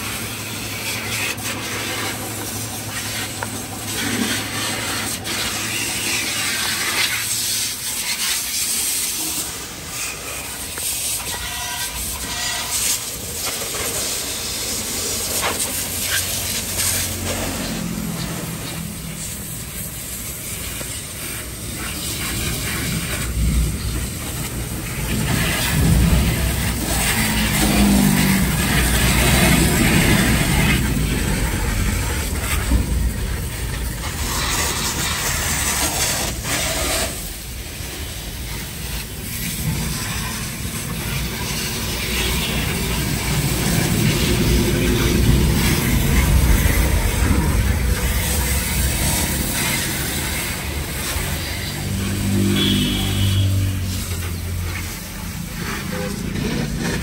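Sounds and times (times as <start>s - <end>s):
car engine running: 12.2s - 57.0s.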